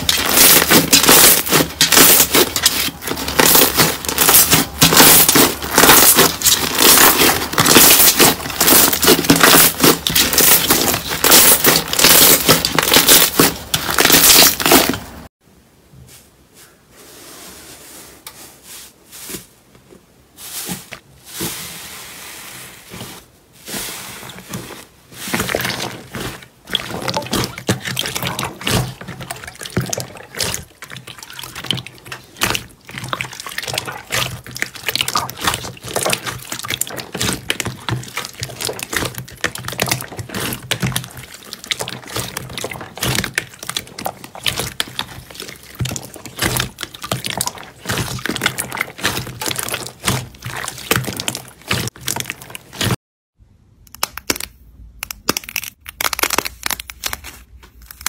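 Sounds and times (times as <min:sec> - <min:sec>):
hands squishing slime: 0:00.0 - 0:15.3, 0:23.7 - 0:53.0, 0:53.9 - 0:58.0
air bubbles popping in slime: 0:26.7 - 0:52.9.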